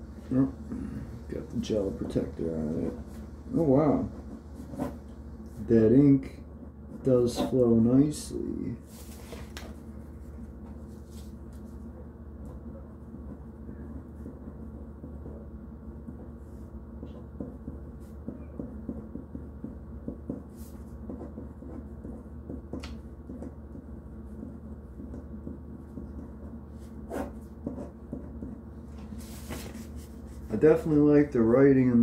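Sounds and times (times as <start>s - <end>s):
steady low hum: 0.0s - 32.0s
pen scratching on paper: 2.6s - 5.7s, 10.2s - 28.6s.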